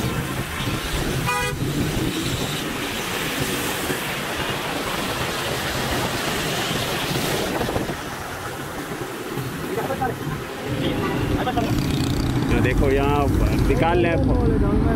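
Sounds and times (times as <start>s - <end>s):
road traffic on wet street: 0.0s - 14.9s
vehicle horn toot: 1.2s - 1.6s.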